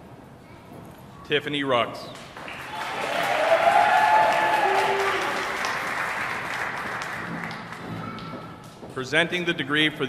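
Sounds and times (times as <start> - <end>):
audience applauding: 2.2 - 8.2.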